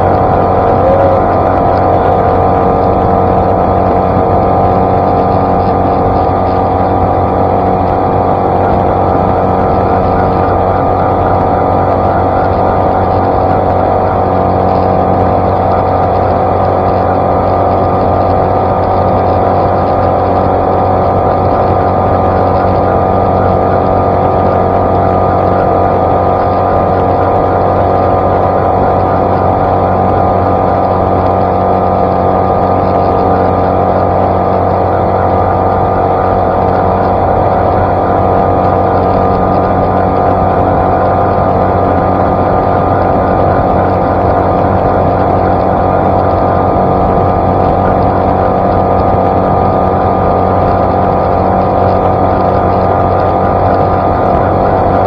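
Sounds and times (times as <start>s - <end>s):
outboard motor at full throttle: 0.0s - 55.0s
water rushing along hull: 0.0s - 55.0s.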